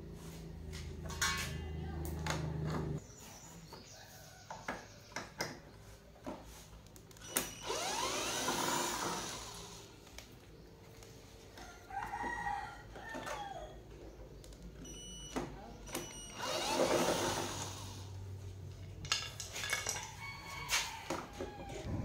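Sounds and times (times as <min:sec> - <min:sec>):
rooster crowing: 0:11.5 - 0:13.8, 0:20.0 - 0:22.0.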